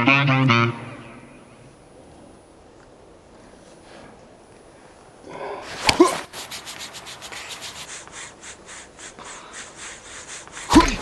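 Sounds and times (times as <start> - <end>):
rapid scraping strokes: 5.6 - 11.0
sharp swish: 5.7 - 11.0.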